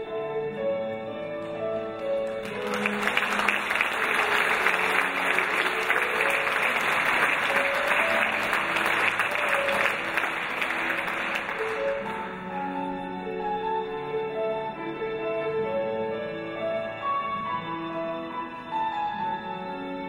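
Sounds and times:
grand piano playing: 0.0s - 20.0s
audience applauding: 1.4s - 12.5s.

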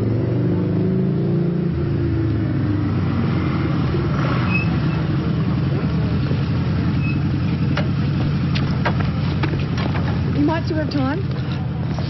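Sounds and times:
motorcycle engine running: 4.9s - 12.0s.

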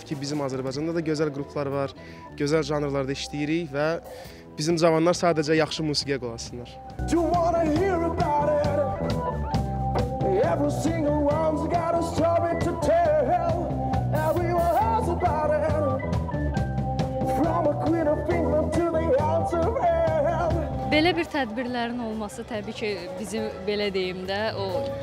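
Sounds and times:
bass guitar: 0.0s - 22.3s
drums: 0.0s - 25.0s
person singing: 7.1s - 9.3s, 10.2s - 16.1s, 17.2s - 21.0s.

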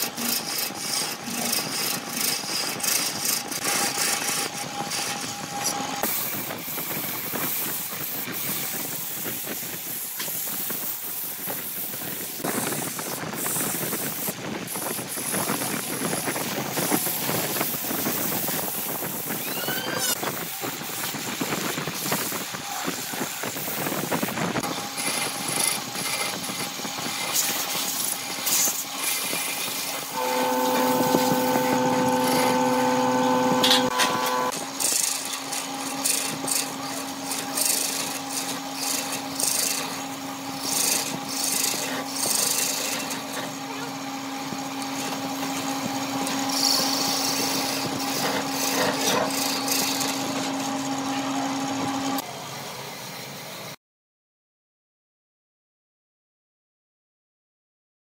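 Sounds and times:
turning tool scraping wood: 0.0s - 7.0s, 24.8s - 43.6s, 46.2s - 50.9s
wood lathe spinning: 0.0s - 8.2s, 24.6s - 52.2s
sandpaper hissing on spinning wood: 0.0s - 43.7s, 44.4s - 52.2s
steady hum: 30.1s - 34.5s.

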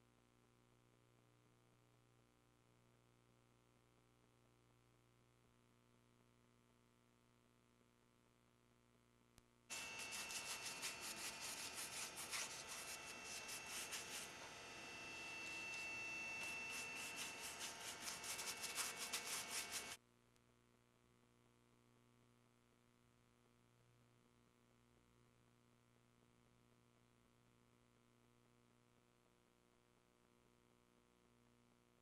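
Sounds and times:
faint mains hum: 0.0s - 32.0s
paintbrush scrubbing on wood: 9.7s - 20.0s.

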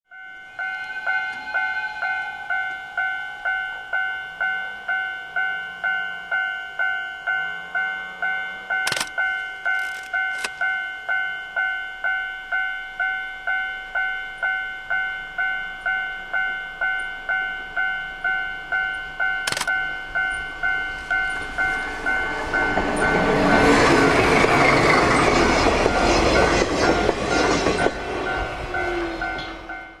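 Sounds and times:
train wheels passing: 0.1s - 12.6s, 14.9s - 30.0s
diesel locomotive engine: 0.1s - 30.0s
level-crossing alarm dinging: 0.1s - 30.0s.

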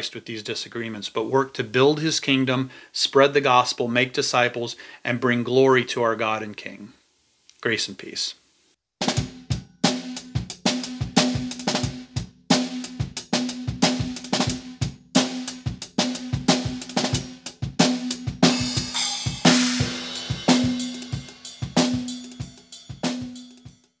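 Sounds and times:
drum kit playing: 9.0s - 23.9s
cymbal crash: 18.4s - 23.7s.

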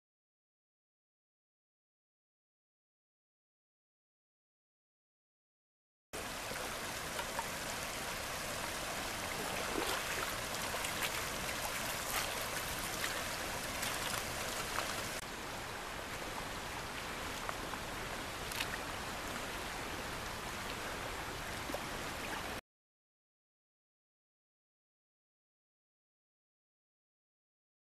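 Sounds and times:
river rippling over gravel: 6.2s - 22.4s.

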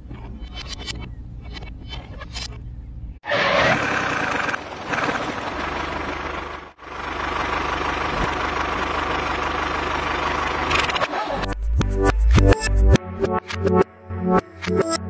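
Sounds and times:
tractor engine idling: 3.5s - 11.5s.

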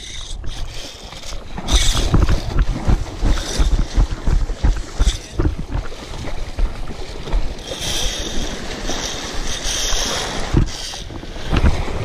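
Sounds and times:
fishing reel whirring: 0.0s - 5.4s, 7.5s - 11.1s
shallow surf: 0.0s - 12.0s
wind buffeting microphone: 0.0s - 12.0s.

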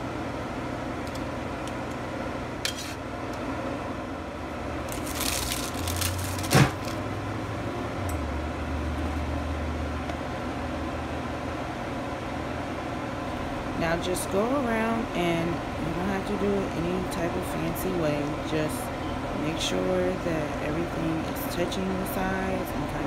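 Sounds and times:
steady low hum: 0.0s - 23.0s
plastic sheet rustling: 4.8s - 7.0s.

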